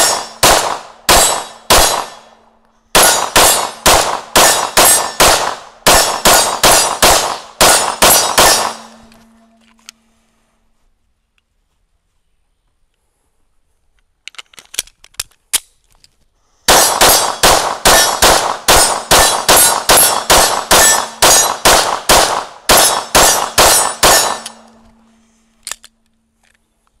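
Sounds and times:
pistol firing rapid shots: 0:00.0 - 0:02.3, 0:03.0 - 0:08.9, 0:16.7 - 0:24.6.

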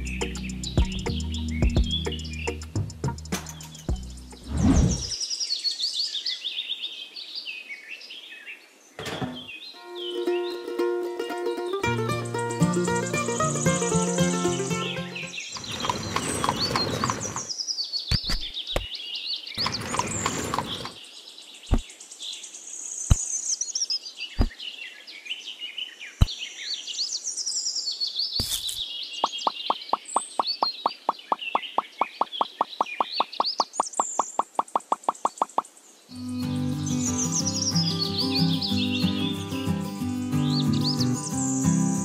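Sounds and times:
birds chirping and singing: 0:00.0 - 0:10.7, 0:11.8 - 0:42.0
pebbles knocking: 0:15.5 - 0:17.5, 0:19.6 - 0:21.0, 0:28.4 - 0:35.6
rustling noise: 0:15.5 - 0:17.5, 0:19.6 - 0:21.0, 0:28.4 - 0:28.8
fast even ticking: 0:29.2 - 0:35.6.

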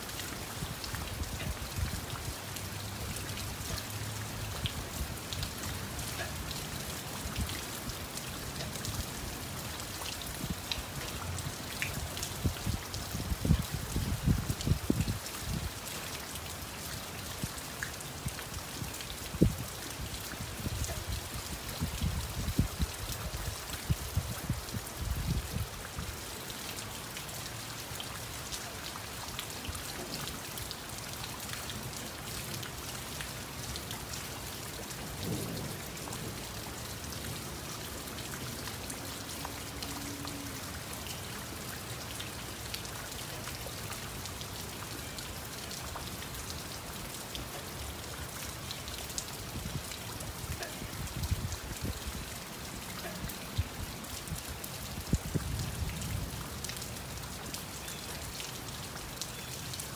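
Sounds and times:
raindrops ticking on a surface: 0:00.0 - 0:59.9
steady rain falling: 0:00.0 - 0:59.9.

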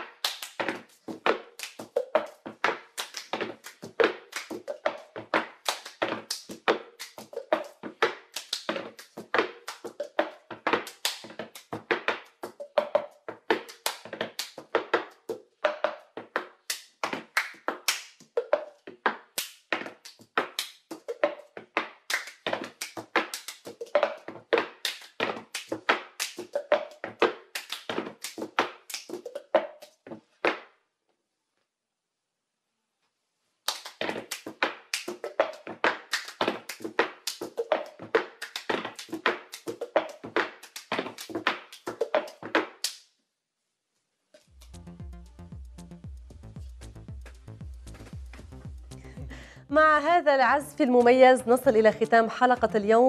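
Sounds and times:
hand claps: 0:00.0 - 0:30.8, 0:33.6 - 0:43.1
plastic cups slapped on table: 0:00.0 - 0:30.8, 0:33.7 - 0:43.0.

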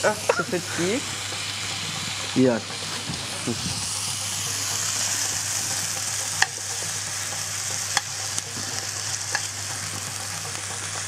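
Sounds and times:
meat sizzling in a frying pan: 0:00.0 - 0:11.0
metal tongs clicking on pan: 0:06.4 - 0:06.6, 0:07.9 - 0:08.7, 0:09.3 - 0:10.1.

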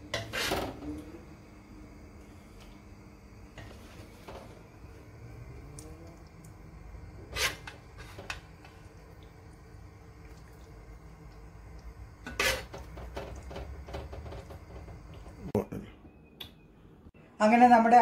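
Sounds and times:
low steady hum: 0:00.0 - 0:18.0
spoon scraping metal pot: 0:00.1 - 0:01.0, 0:07.2 - 0:08.4, 0:12.2 - 0:13.6.

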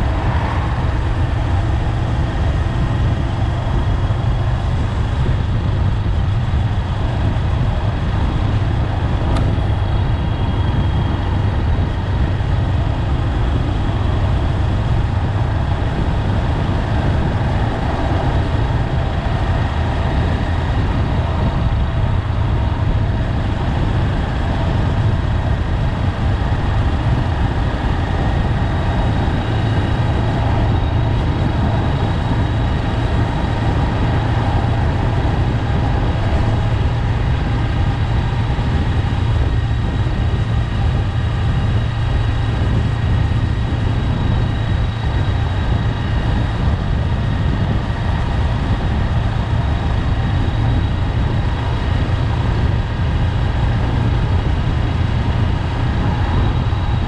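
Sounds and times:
motorcycle engine running: 0:00.0 - 0:57.0
wind and road noise: 0:00.0 - 0:57.0.

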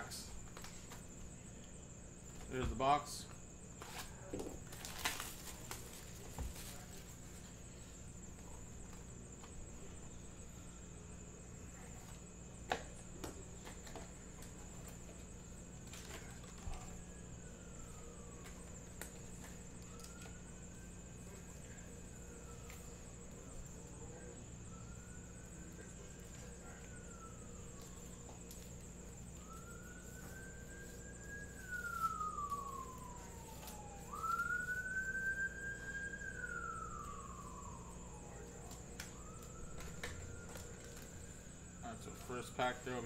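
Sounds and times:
emergency siren wailing: 0:13.2 - 0:43.0.

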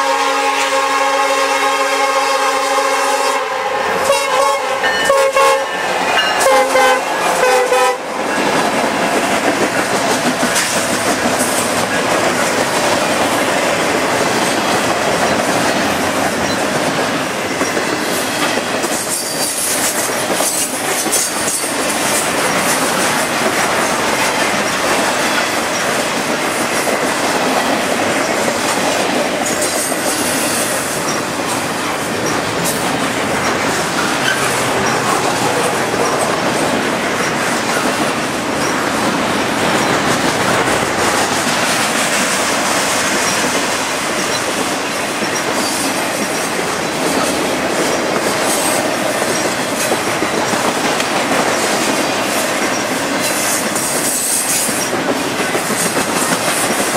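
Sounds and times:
locomotive air horn blasts: 0:00.0 - 0:05.8, 0:06.4 - 0:08.2
freight train passing: 0:00.0 - 0:56.9
wheels clattering over rail joints: 0:08.3 - 0:56.9.

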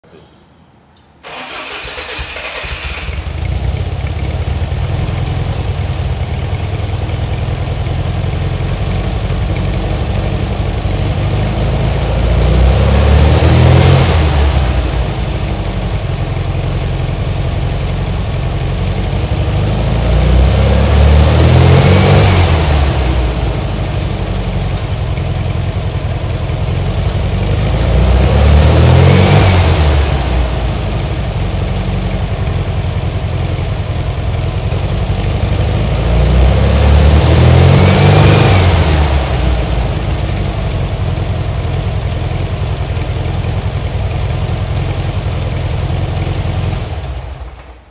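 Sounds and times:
car engine starting and revving: 0:01.2 - 0:47.9.

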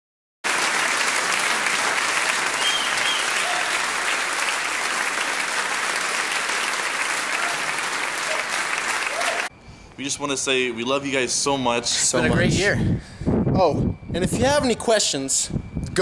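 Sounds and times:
crowd applauding: 0:00.4 - 0:09.5.

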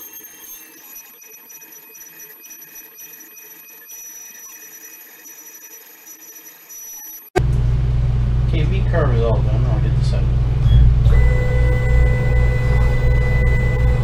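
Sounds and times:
router spindle high whine: 0:00.0 - 0:07.3, 0:11.1 - 0:14.0.

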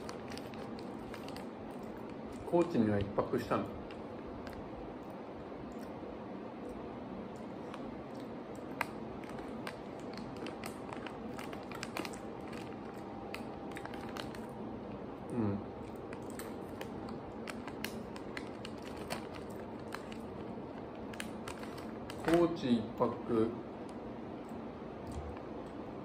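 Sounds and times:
crunchy snack chewing: 0:00.0 - 0:02.6, 0:03.8 - 0:14.6, 0:15.7 - 0:22.4
plastic bag crinkling: 0:00.0 - 0:04.7, 0:07.4 - 0:14.6, 0:15.8 - 0:23.2
room hiss: 0:00.0 - 0:26.0
person humming: 0:15.3 - 0:15.6.

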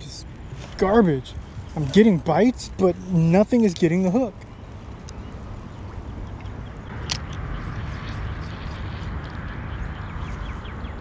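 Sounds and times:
bird chirping: 0:01.2 - 0:11.0
sharp click: 0:06.4 - 0:07.4.

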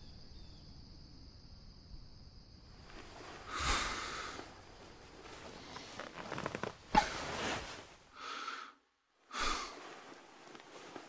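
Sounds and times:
light rustling: 0:02.8 - 0:08.1, 0:09.4 - 0:11.0
person breathing heavily: 0:03.2 - 0:04.6, 0:07.0 - 0:10.2.

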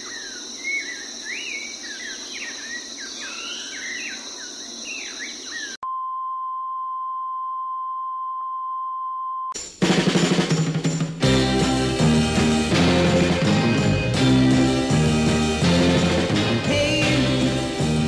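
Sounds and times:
birds chirping: 0:00.0 - 0:05.8
high insect drone: 0:00.0 - 0:05.8.

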